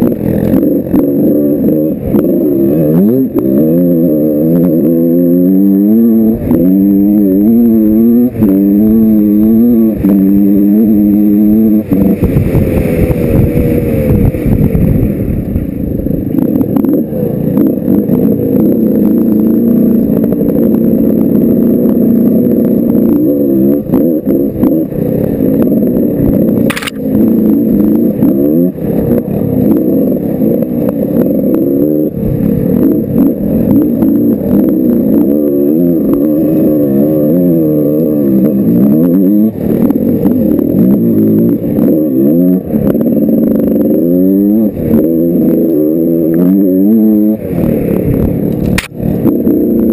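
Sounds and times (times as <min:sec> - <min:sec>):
two-stroke dirt bike engine revving: 0:00.0 - 0:49.9.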